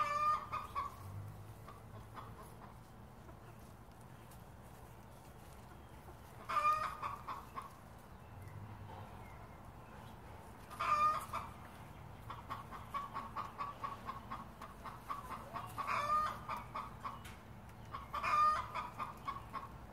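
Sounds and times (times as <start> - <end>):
loud chicken calls: 0.0 - 3.4, 6.0 - 7.8, 10.6 - 19.8
chickens clucking: 0.0 - 19.9.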